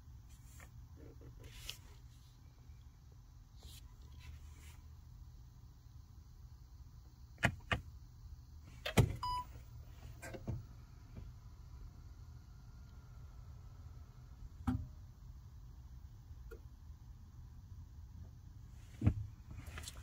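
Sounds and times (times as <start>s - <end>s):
low steady hum: 0.0s - 20.0s
clicks and knocks in car: 7.4s - 7.9s, 18.9s - 20.0s.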